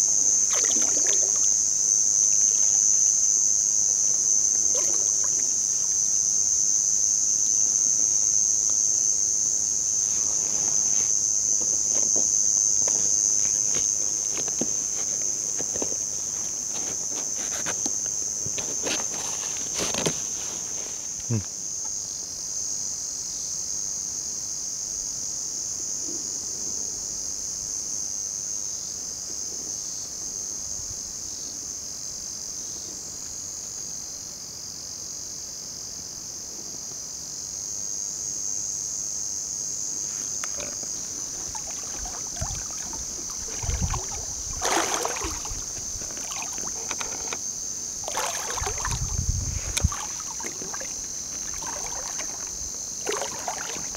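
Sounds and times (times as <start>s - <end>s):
high-pitched insect chorus: 0.0s - 53.9s
water splashing: 0.4s - 1.6s, 4.6s - 5.6s, 40.5s - 47.4s, 48.0s - 53.9s.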